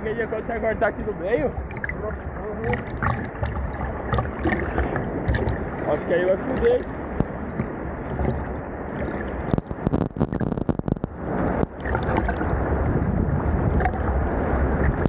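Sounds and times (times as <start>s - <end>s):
water sloshing and splashing: 1.3s - 15.0s
sharp crackles: 7.2s - 12.2s.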